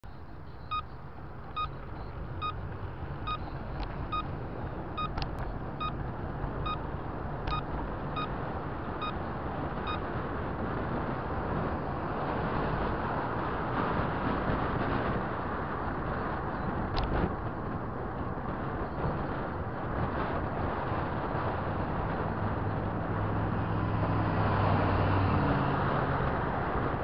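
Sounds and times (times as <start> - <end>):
engine and tyre rumble: 0.0 - 27.0
turn signal beeping: 0.1 - 10.2.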